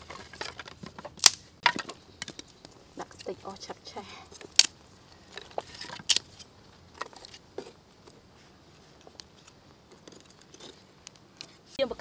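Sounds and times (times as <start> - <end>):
wooden sticks clattering: 0.0 - 8.2.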